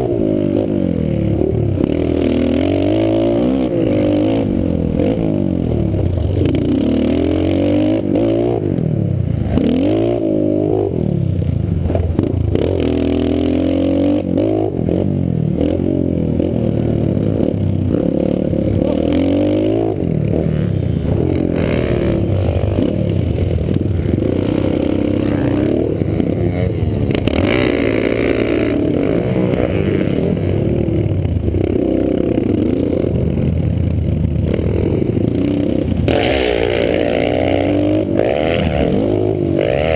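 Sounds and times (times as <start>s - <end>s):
pit bike engine revving: 0.0s - 39.9s.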